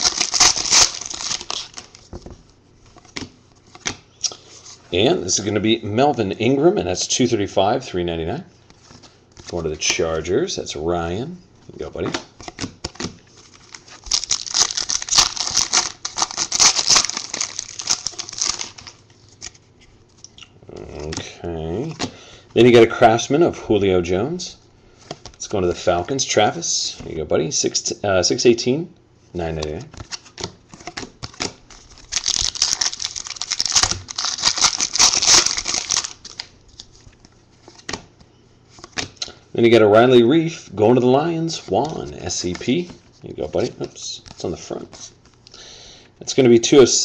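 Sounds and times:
foil wrapper tearing and crinkling: 0:00.0 - 0:02.0, 0:13.7 - 0:19.0, 0:31.7 - 0:36.8.

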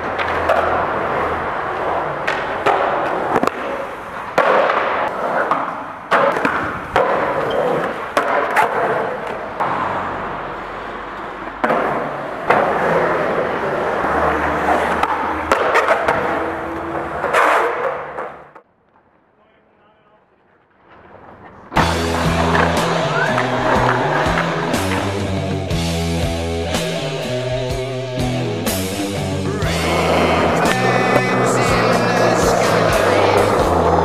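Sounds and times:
skateboard clacking on ground: 0:00.0 - 0:09.9, 0:11.4 - 0:19.0, 0:20.5 - 0:25.3, 0:29.9 - 0:34.0
skateboard wheels rolling: 0:00.0 - 0:34.0.

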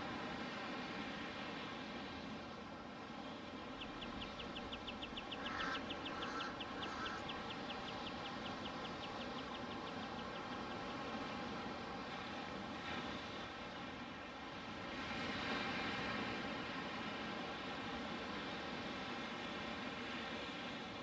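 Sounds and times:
lower animal calls: 0:05.2 - 0:07.4.

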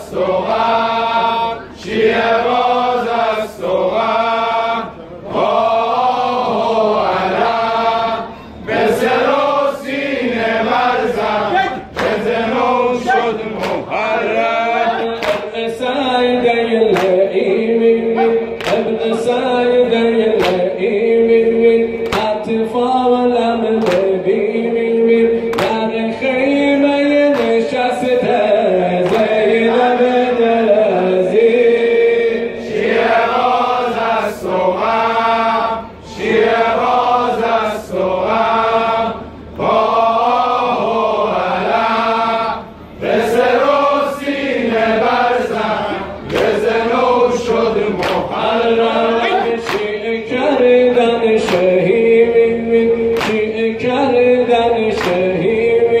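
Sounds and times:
men chanting in unison: 0:00.0 - 0:56.0
chest-beating slaps: 0:20.4 - 0:20.6, 0:48.0 - 0:48.3, 0:49.6 - 0:50.0, 0:53.2 - 0:53.4, 0:55.0 - 0:55.3.

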